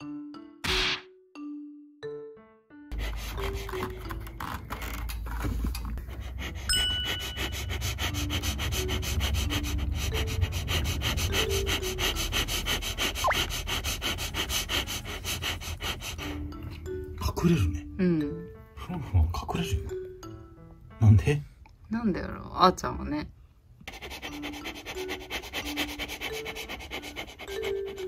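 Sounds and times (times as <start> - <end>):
soft background music: 0.0 - 28.0
person sniffing rapidly: 6.1 - 16.5.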